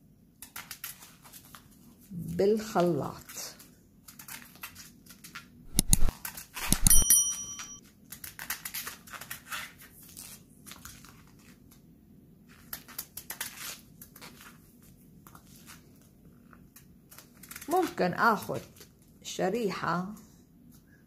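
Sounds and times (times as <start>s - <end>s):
slices dropping into glass jar: 5.7s - 7.8s.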